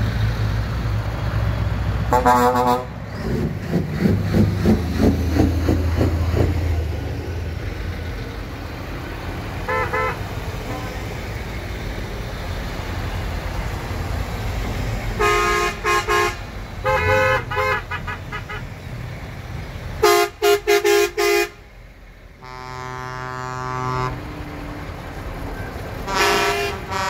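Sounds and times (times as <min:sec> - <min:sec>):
lorry engines rumbling: 0:00.0 - 0:27.0
horns tooting short blasts: 0:02.1 - 0:03.0, 0:09.7 - 0:11.0, 0:15.2 - 0:18.6, 0:20.0 - 0:21.6, 0:22.4 - 0:24.4, 0:26.1 - 0:27.0
long low-pitched horn: 0:02.1 - 0:03.0, 0:22.4 - 0:24.7.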